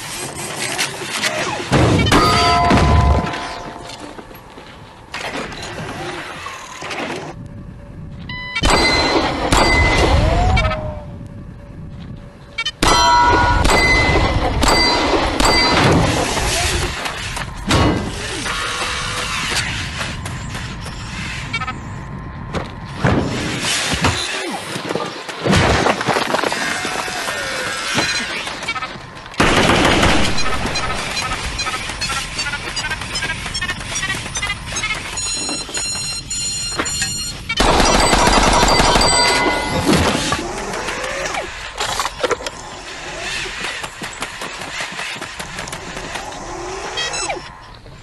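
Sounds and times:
rapid gunfire: 29.4 - 34.2, 37.6 - 39.7.

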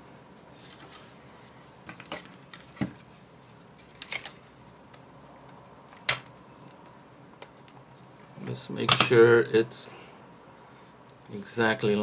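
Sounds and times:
paper and plastic rustling: 0.5 - 4.3.

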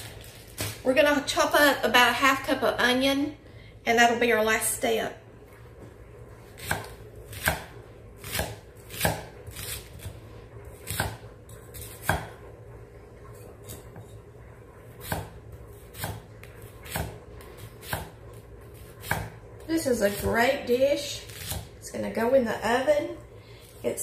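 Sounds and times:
knife chopping on wooden board: 6.6 - 10.1, 10.8 - 11.2, 11.8 - 12.4, 15.0 - 16.2, 16.8 - 17.2, 17.8 - 18.2, 18.8 - 19.3.

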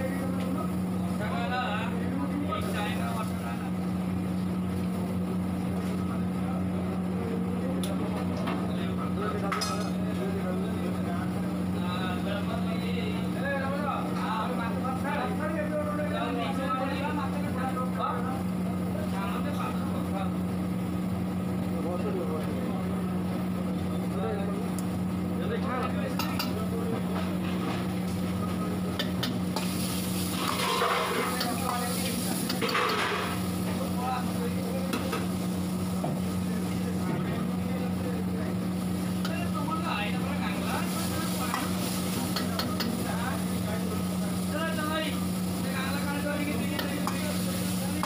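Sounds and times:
loud hissing sizzle: 0.0 - 6.3, 27.9 - 48.0
low mechanical hum: 0.0 - 48.0
metal ladle scraping wok: 29.6 - 33.4
metal utensils clinking: 30.3 - 33.4.

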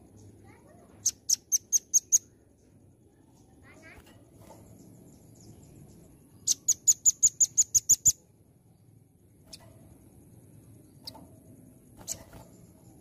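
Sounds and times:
bird calling high sharp chips: 1.0 - 2.4, 6.4 - 8.3, 12.0 - 13.0.

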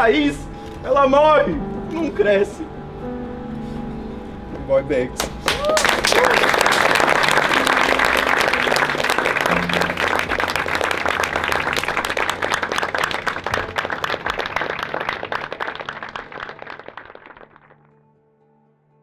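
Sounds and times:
faint music: 0.0 - 19.0
crowd applauding: 5.2 - 17.8.

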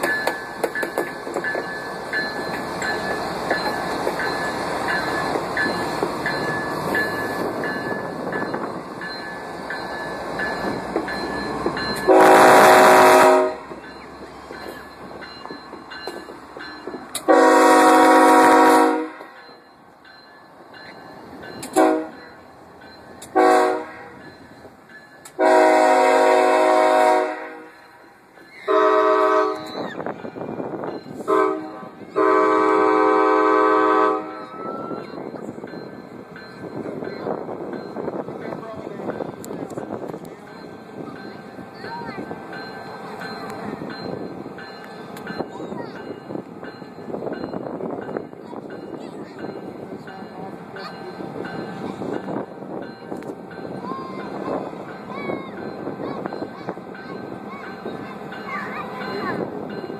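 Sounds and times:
diesel locomotive rumbling past: 0.0 - 59.9
train air horn blasts: 12.1 - 13.7, 17.2 - 19.4, 21.8 - 22.2, 23.3 - 24.2, 25.4 - 27.8, 28.7 - 29.8, 31.2 - 34.5.

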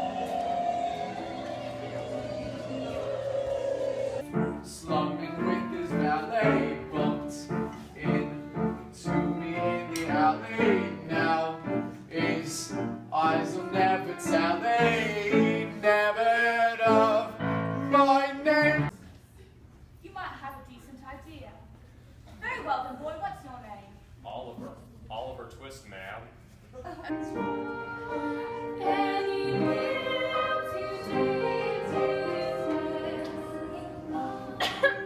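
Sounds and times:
choir singing operatically: 0.0 - 18.9, 27.4 - 35.0.

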